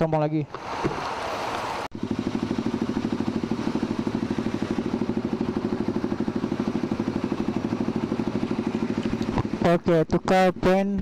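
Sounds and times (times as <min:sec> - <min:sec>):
motorcycle engine idling: 0:02.0 - 0:10.7.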